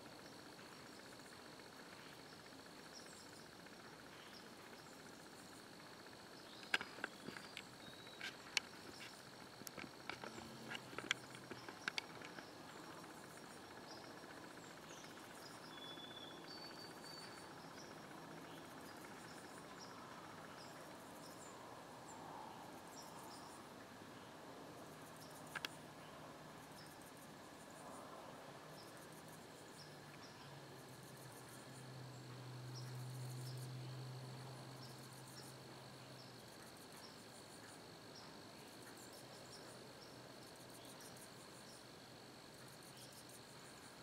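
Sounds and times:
crickets trilling: 0:00.0 - 0:44.0
bird chirps: 0:13.8 - 0:17.9.

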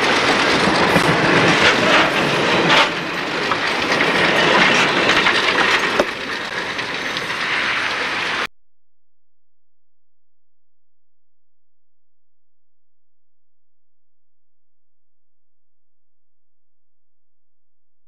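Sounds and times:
train wheels clickety-clack: 0:00.0 - 0:08.5.

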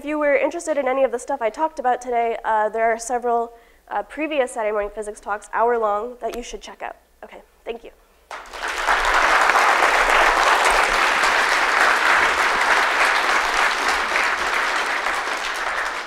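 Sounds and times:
audience applauding: 0:08.3 - 0:16.0.

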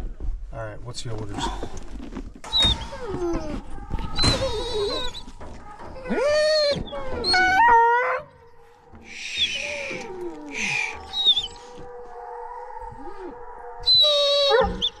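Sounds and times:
hounds baying: 0:02.5 - 0:15.0.

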